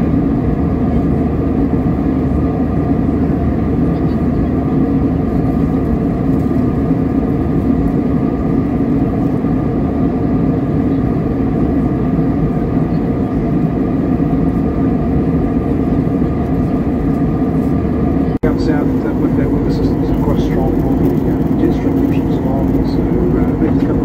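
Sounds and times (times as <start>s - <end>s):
airliner cabin engine rush: 0.0s - 24.0s
faint steady hum: 12.9s - 24.0s.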